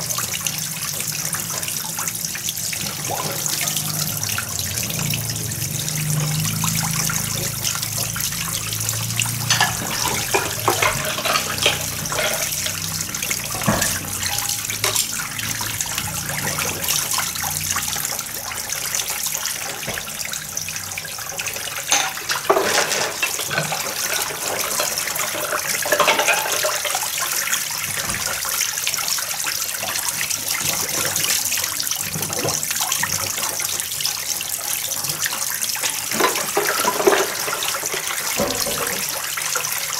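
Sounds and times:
water splashing and trickling: 0.0s - 39.9s
plates and bowls clinking: 8.7s - 15.6s, 21.9s - 27.0s, 36.1s - 39.1s.

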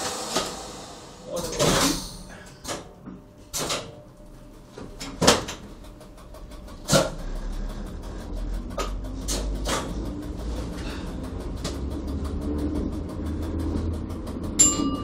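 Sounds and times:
railcar motor humming: 0.0s - 15.0s.

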